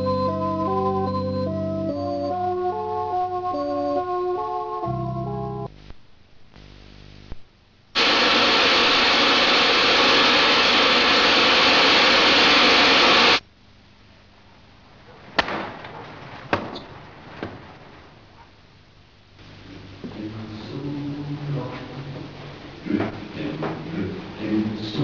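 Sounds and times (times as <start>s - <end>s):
loud static rushing noise: 5.7s - 13.8s.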